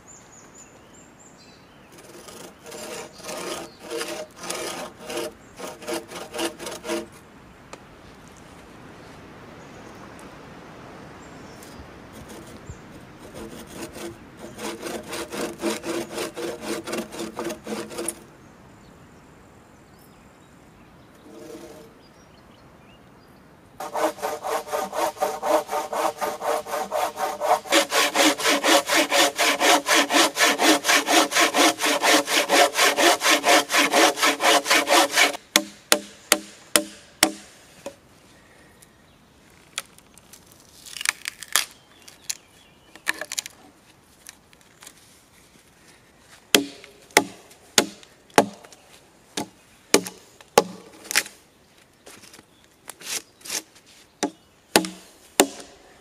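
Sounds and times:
hand saw cutting log: 2.0 - 7.2, 12.2 - 12.6, 13.2 - 18.2, 21.3 - 21.9, 23.8 - 37.4, 46.5 - 48.6, 53.0 - 55.7
blade chopping wood: 23.8 - 37.5, 46.6 - 48.7, 49.4 - 51.3, 54.2 - 55.7.

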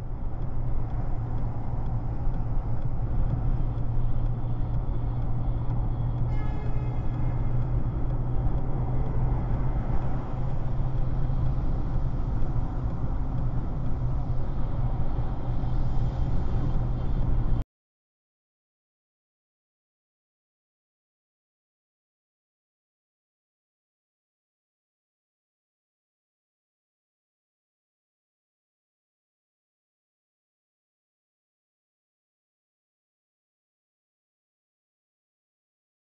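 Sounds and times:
car road and wind noise: 0.0 - 17.6.

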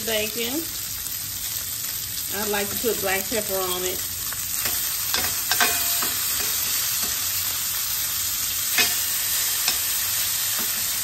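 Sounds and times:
bacon sizzling in a skillet: 0.0 - 11.0
metal tongs clinking on pan: 4.6 - 7.3, 8.7 - 11.0.

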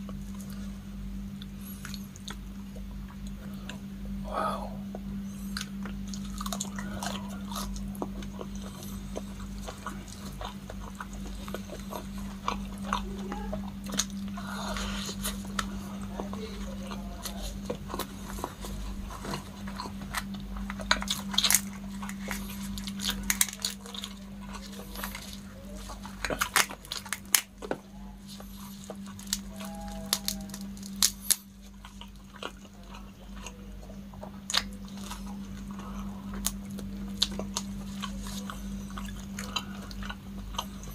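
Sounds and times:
steady low hum: 0.0 - 40.9
person chewing with mouth smacks: 1.3 - 3.9, 4.7 - 40.9
prawn shell cracking: 18.9 - 31.9.

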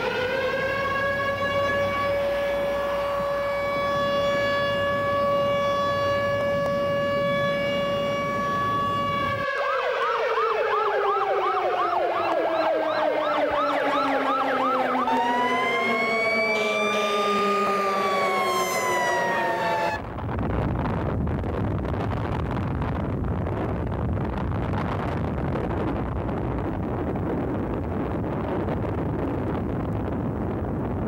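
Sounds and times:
fast yelping siren: 0.0 - 20.0
siren wailing down in pitch: 0.0 - 20.1
civil defense siren steady tone: 0.0 - 20.2.

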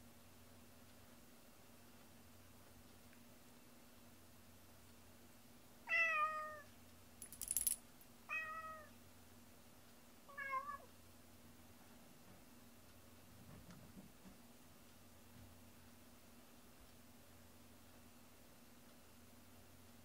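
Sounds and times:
cat meowing: 5.9 - 6.7, 8.3 - 8.9, 10.3 - 10.9
metallic jingle: 7.2 - 7.8.

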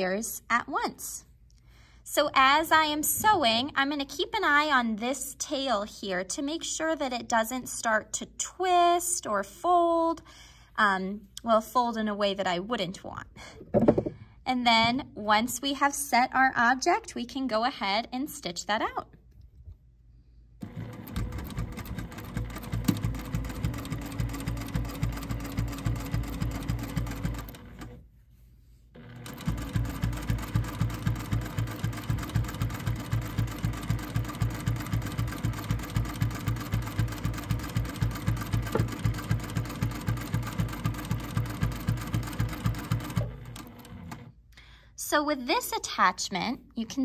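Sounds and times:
sewing machine stitching rapidly: 20.6 - 28.0, 29.0 - 44.3.

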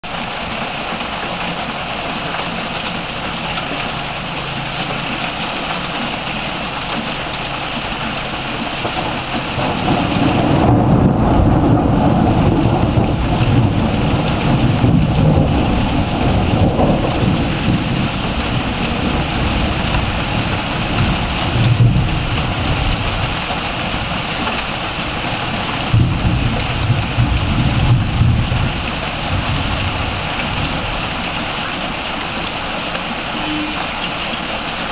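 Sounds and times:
heavy rain: 0.0 - 34.9
thunder rumbling: 8.7 - 31.4.

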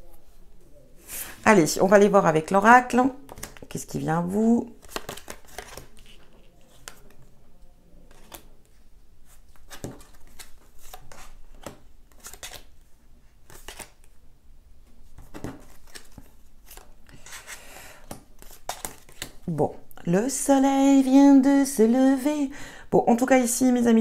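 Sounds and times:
cards sliding: 4.8 - 7.2, 9.5 - 12.7, 13.5 - 14.0, 15.2 - 19.4.

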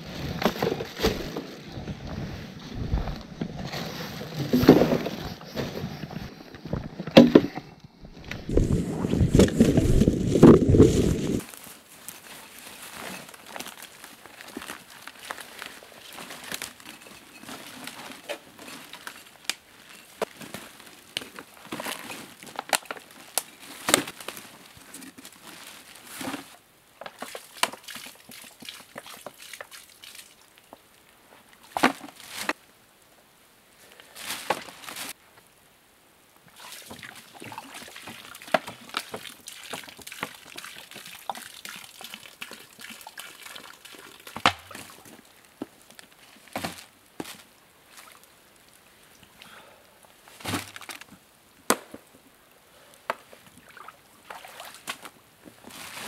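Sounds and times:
water sloshing and trickling: 36.5 - 45.2, 53.6 - 55.0.

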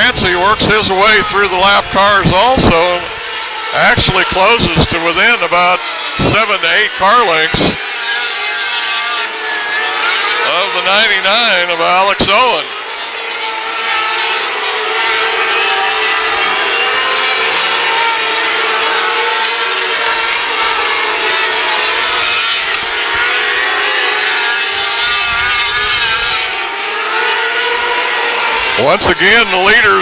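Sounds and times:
racing car engines whining: 0.0 - 30.0.

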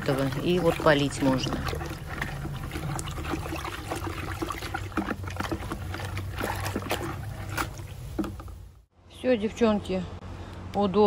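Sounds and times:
stick knocking bucket: 0.0 - 8.6
water sloshing in bucket: 0.0 - 8.8.

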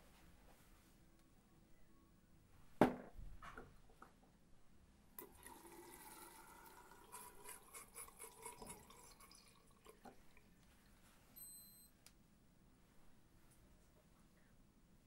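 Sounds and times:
tap water running onto cloth: 5.2 - 11.0.

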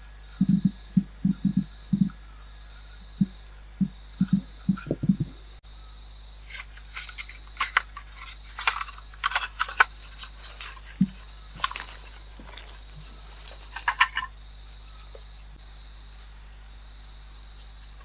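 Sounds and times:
low thump: 3.2 - 5.4
rustling of dry leaf litter: 6.4 - 14.1.

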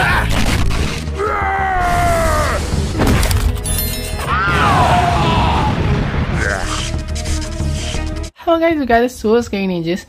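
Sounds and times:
background music: 0.0 - 10.0
cry rising and falling: 4.2 - 6.9.

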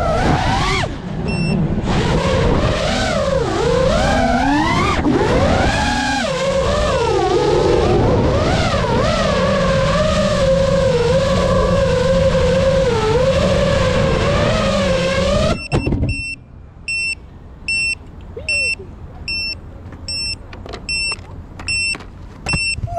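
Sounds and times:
drone propellers whining: 0.0 - 22.0
short high beeps: 1.3 - 1.6, 15.6 - 22.9.

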